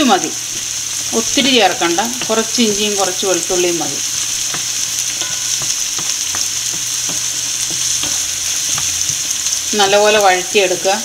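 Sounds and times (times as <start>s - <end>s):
vegetables sizzling in oil: 0.0s - 11.0s
spatula stirring and tapping pan: 1.3s - 9.8s.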